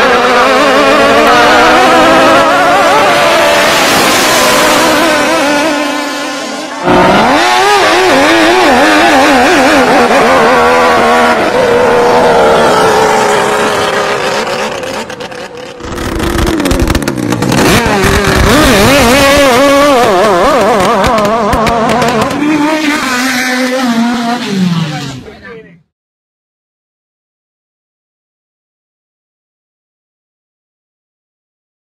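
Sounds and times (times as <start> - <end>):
speedboat engine high revs: 0.0 - 25.3.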